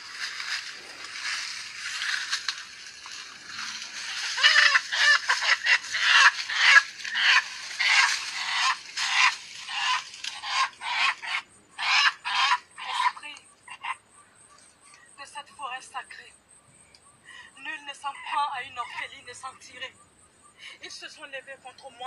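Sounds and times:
leaves and branches rustling: 0:00.0 - 0:13.4
chicken squawking: 0:03.6 - 0:14.0.

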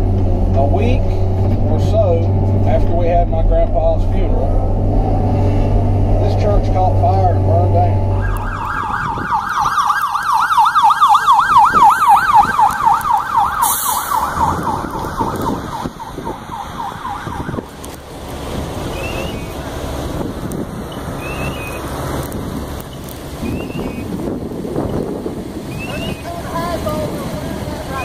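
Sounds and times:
steady low noise: 0:00.0 - 0:23.4
fire engine siren yelping: 0:08.1 - 0:28.0.

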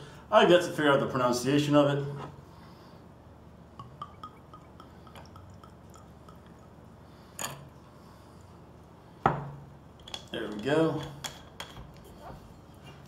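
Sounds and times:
liquid glugging into glass: 0:03.8 - 0:07.7.

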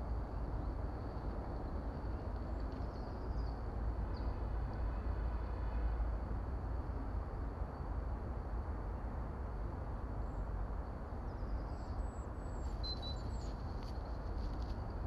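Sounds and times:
bird chirps and whistles: 0:12.8 - 0:13.4.

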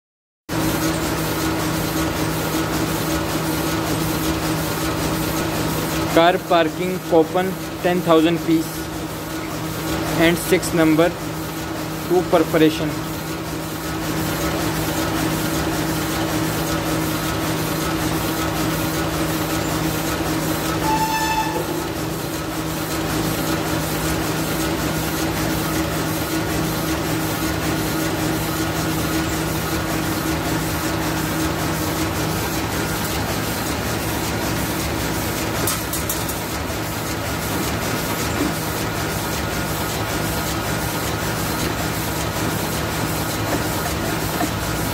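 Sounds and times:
printing press clattering: 0:00.7 - 0:44.9
machine hum: 0:18.0 - 0:24.8
short beep: 0:20.8 - 0:22.0.

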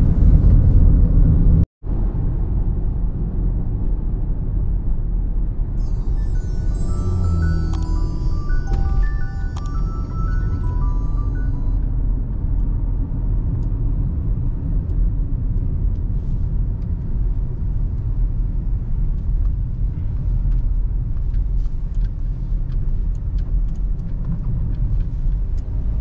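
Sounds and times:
car interior road rumble: 0:05.8 - 0:11.7.

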